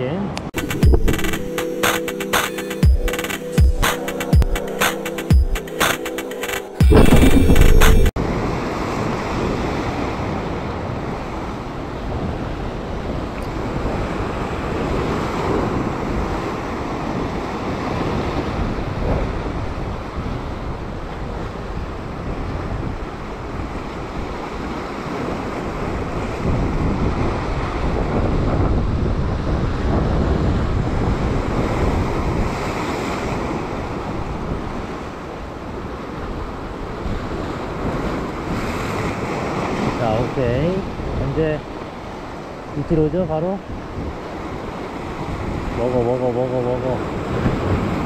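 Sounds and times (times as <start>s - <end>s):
wind buffeting microphone: 6.9s - 42.8s, 47.0s - 48.0s.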